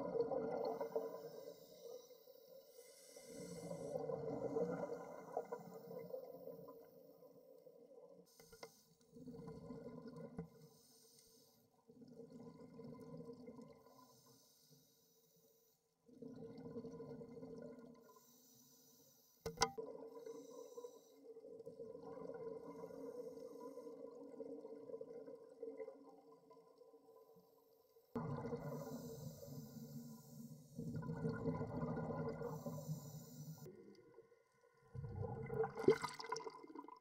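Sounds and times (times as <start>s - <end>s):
regulator hiss on inhale: 0.8s - 4.0s, 8.3s - 9.1s, 10.6s - 11.7s, 13.9s - 15.8s, 18.1s - 19.5s, 20.2s - 21.3s, 28.6s - 30.9s, 32.4s - 33.7s
rush of bubbles: 30.8s - 32.6s, 35.0s - 37.0s.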